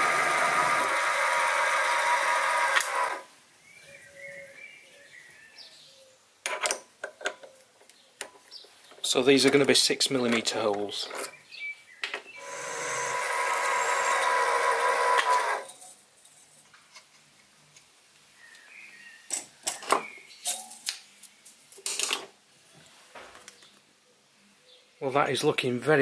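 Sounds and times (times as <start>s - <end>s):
mill drilling metal: 0.0s - 3.2s, 12.4s - 15.7s.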